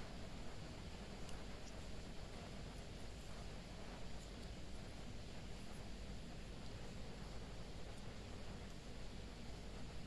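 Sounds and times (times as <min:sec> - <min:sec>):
faint room noise hiss: 0:00.0 - 0:10.0
faint plastic clicks: 0:01.2 - 0:01.8.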